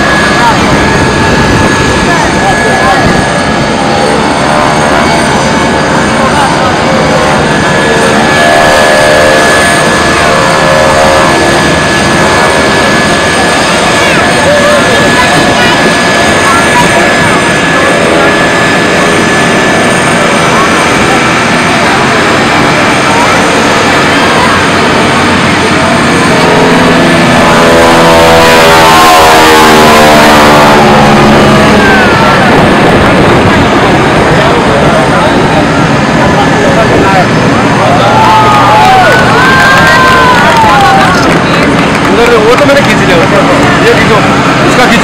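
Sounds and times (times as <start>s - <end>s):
biplane engine droning: 0.0s - 45.0s.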